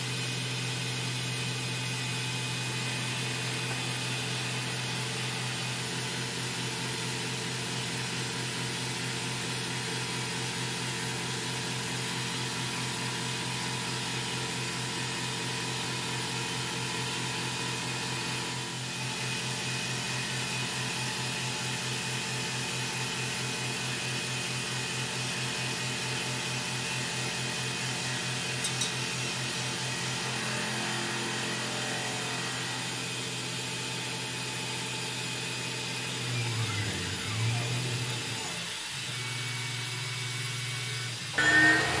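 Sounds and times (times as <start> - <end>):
milling machine humming: 35.1 - 42.0.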